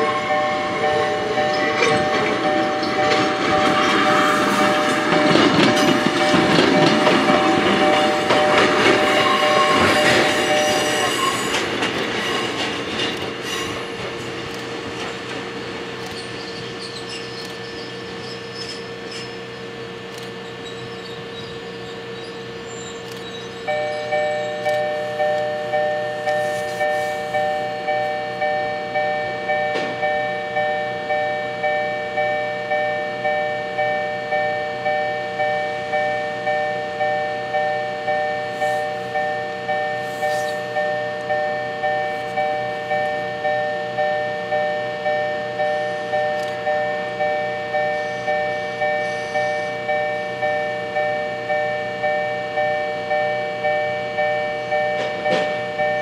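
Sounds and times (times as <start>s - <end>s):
level-crossing warning bell ringing: 0.0s - 56.0s.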